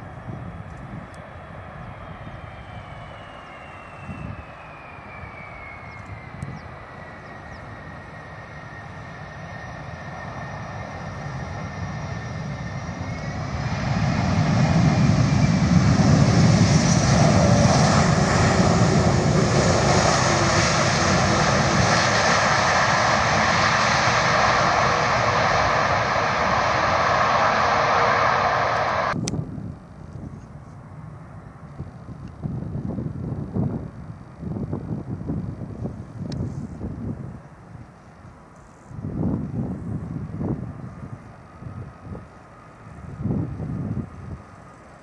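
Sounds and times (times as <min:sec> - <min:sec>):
jet engines roaring: 0:00.0 - 0:29.4
jet engine fan whine: 0:00.0 - 0:45.0.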